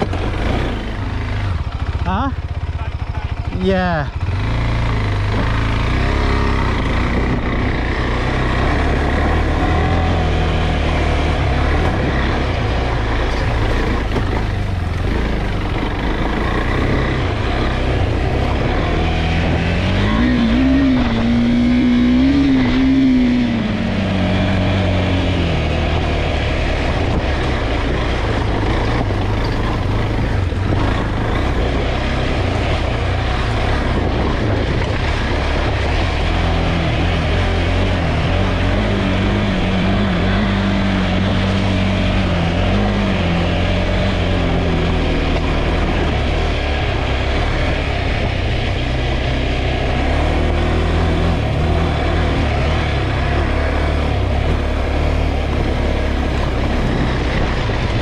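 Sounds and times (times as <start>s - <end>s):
motorcycle engine running: 0.0s - 58.0s.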